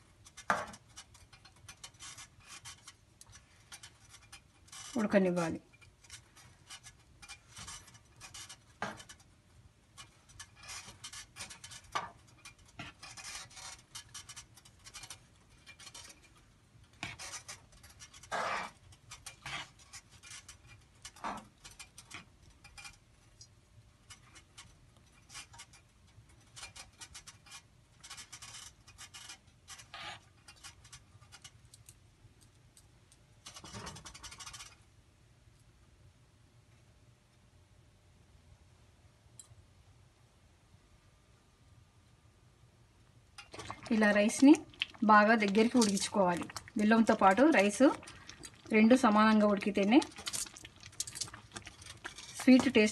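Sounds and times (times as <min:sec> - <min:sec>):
metal spoon scraping pan: 0:10.0 - 0:23.1, 0:43.4 - 0:52.9.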